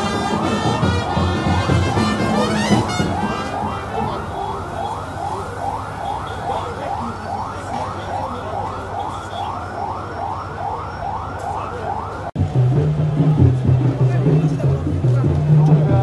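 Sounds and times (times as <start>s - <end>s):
siren sweeping: 0.0s - 12.5s.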